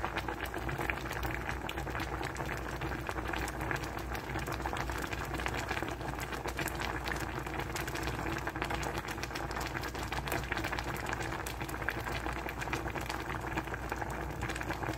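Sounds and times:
soup boiling and bubbling: 0.0 - 14.9.

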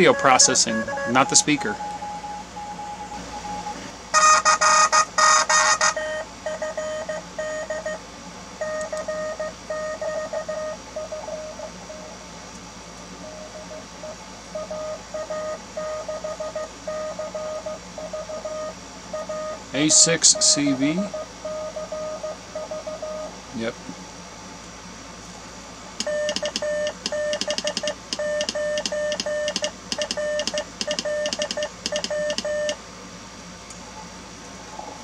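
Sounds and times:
morse code beeping tone: 0.0 - 8.0, 13.2 - 23.3, 26.0 - 32.8.

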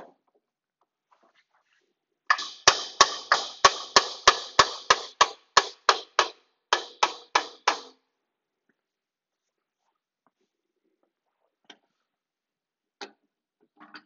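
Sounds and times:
mallet hammering on metal shaft: 2.3 - 8.0.

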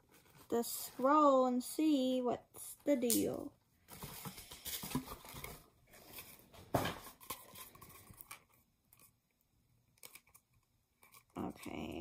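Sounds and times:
paper rustling: 3.9 - 9.1.

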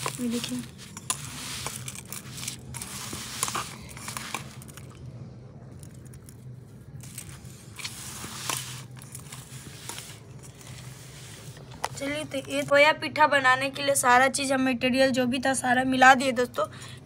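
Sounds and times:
dry crackly rustling: 0.0 - 5.0
hands mixing in steel bowl: 0.0 - 5.0.

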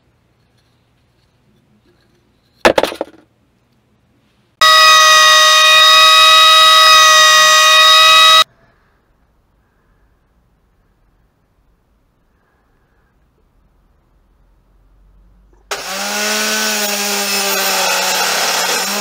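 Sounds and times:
thickness planer high-pitched whine: 4.6 - 8.4.

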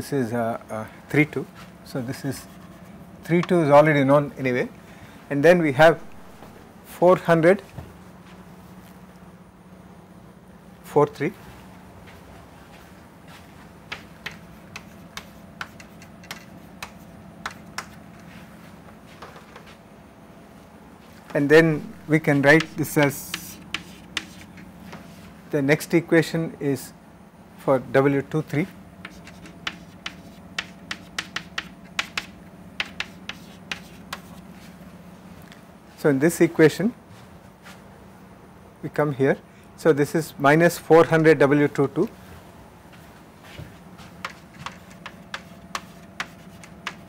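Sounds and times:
faint steady hum: 0.0 - 47.0
chalk tapping on chalkboard: 13.9 - 18.0, 21.8 - 25.1, 29.0 - 34.4, 44.0 - 47.0.

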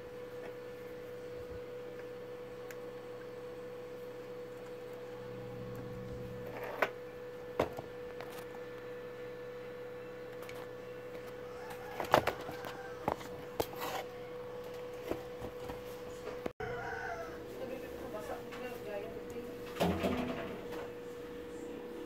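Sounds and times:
steady single-pitched whine: 0.0 - 19.5.

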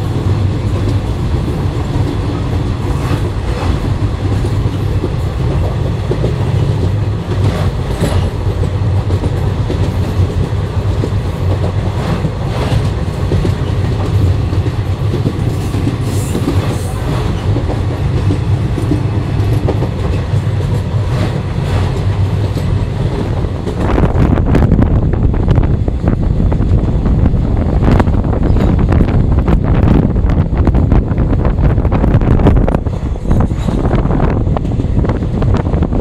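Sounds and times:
train clatter: 0.0 - 36.0
train wheels rumbling on rails: 0.0 - 36.0.

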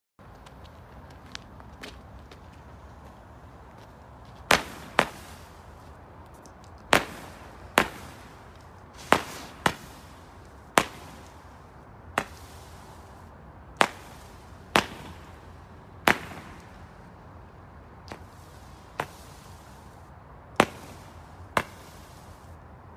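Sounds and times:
firework bangs with echo: 6.9 - 8.3, 9.0 - 10.0, 10.7 - 11.4, 13.8 - 15.4, 16.1 - 16.6, 20.6 - 22.2.

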